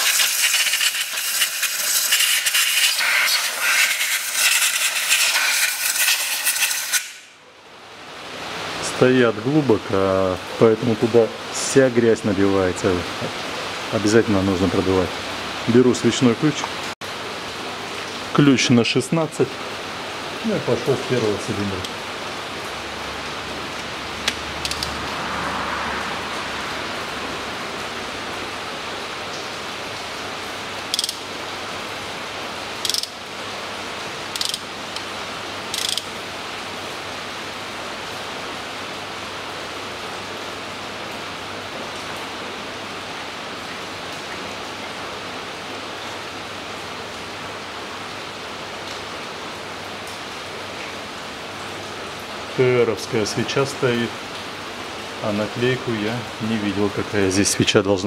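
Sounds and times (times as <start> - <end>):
ratchet wrench clicking: 0.0 - 7.2, 24.6 - 24.9, 30.9 - 31.2, 32.8 - 33.2, 34.3 - 34.7, 35.7 - 36.1
rain hissing: 0.0 - 58.0.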